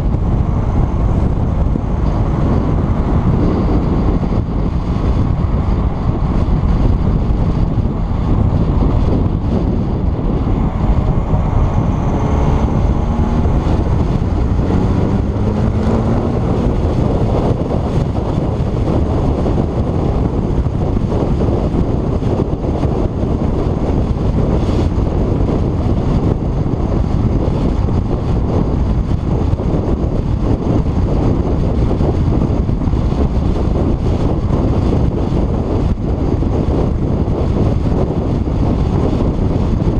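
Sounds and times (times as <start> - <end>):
rising engine note: 0.0 - 18.2
tyre and engine noise: 0.0 - 39.9
wind buffeting microphone: 0.0 - 39.9.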